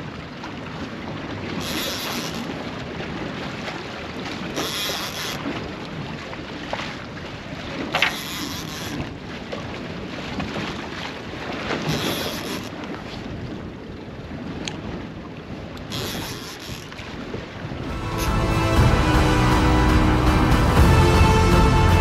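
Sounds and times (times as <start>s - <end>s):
water lapping around hull: 0.0s - 22.0s
wind buffeting microphone: 12.8s - 18.0s.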